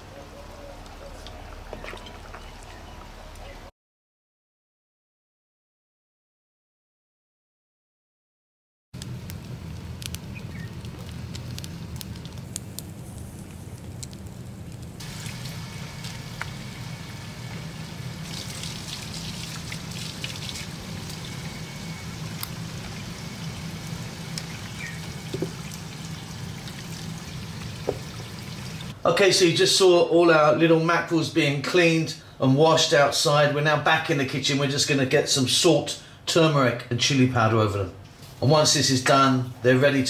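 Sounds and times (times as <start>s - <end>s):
wood fire crackling: 9.0s - 29.6s
water from hose splashing: 15.0s - 29.0s.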